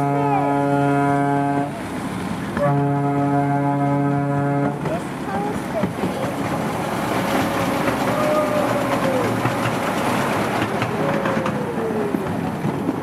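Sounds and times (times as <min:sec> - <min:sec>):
miniature train cars rattling: 0:04.6 - 0:13.0.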